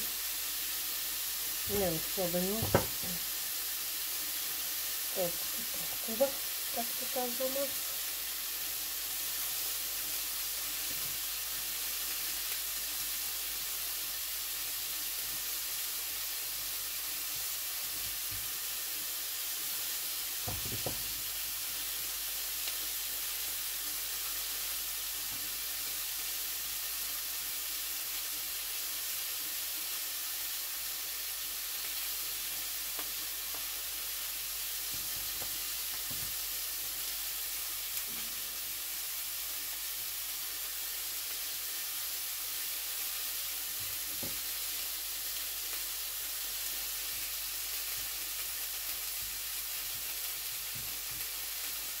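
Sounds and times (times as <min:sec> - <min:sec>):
meat sizzling in a pan: 0:00.0 - 0:52.0
knock: 0:02.6 - 0:03.2, 0:20.5 - 0:21.1.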